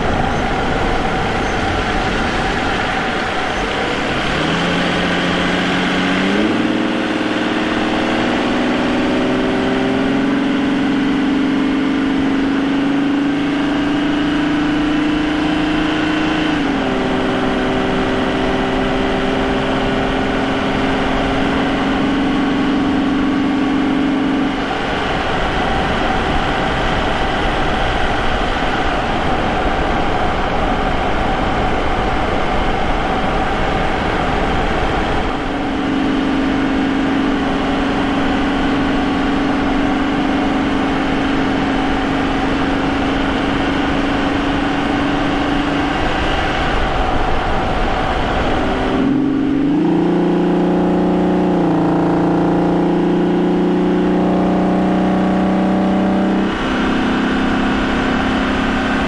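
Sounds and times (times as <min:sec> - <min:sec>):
car engine accelerating: 0:00.0 - 0:59.0
road and wind noise: 0:00.0 - 0:59.0.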